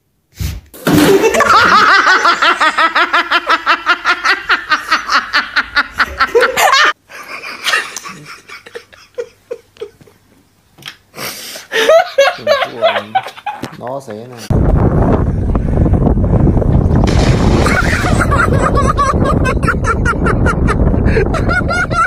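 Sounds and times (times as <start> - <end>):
person laughing hard: 0.9 - 10.2, 11.7 - 13.7, 17.5 - 22.0.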